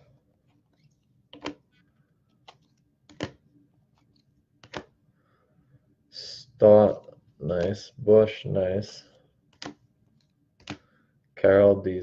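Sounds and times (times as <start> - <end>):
plastic card holders clicking: 1.3 - 1.7, 2.4 - 3.4, 4.6 - 5.0, 9.5 - 10.9.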